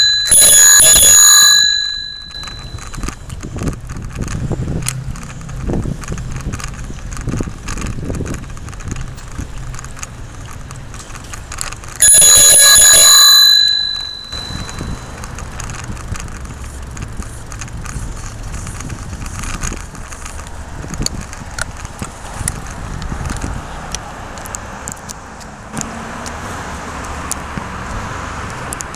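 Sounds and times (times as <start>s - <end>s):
bicycle bell ringing: 0.0s - 3.3s, 12.0s - 15.8s
city traffic: 0.0s - 28.9s.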